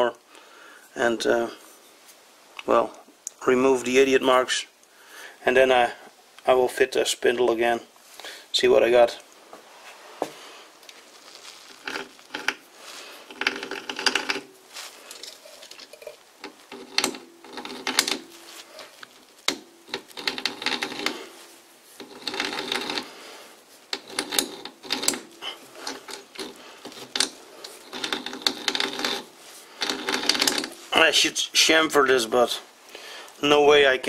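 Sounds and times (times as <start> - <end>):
hand tool scraping metal: 11.8 - 14.5, 19.5 - 21.4, 22.0 - 23.2, 23.9 - 31.0.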